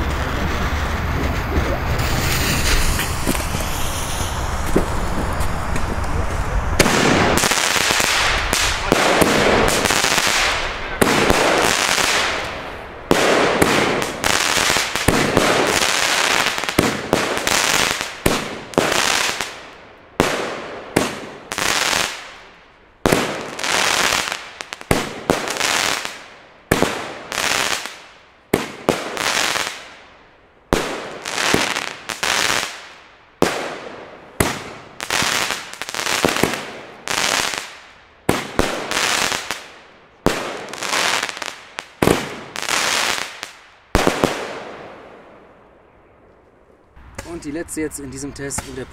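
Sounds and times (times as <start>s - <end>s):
firework battery firing bangs: 6.8s - 19.6s, 33.4s - 45.0s.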